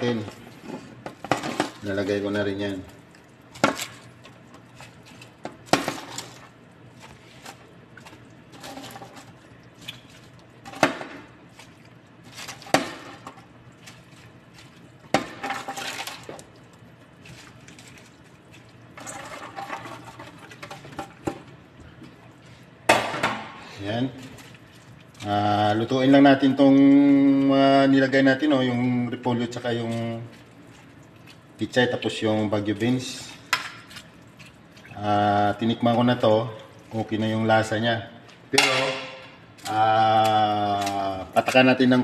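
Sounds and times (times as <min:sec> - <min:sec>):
leaves splashing into broth: 0:22.5 - 0:42.0.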